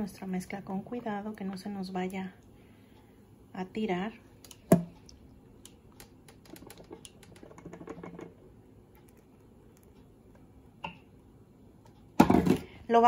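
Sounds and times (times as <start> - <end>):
kitchenware clicking and tapping: 6.0 - 8.4.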